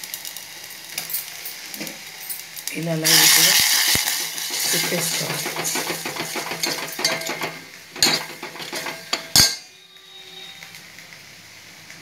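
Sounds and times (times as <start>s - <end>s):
ladle scraping a steel pot: 3.2s - 9.7s.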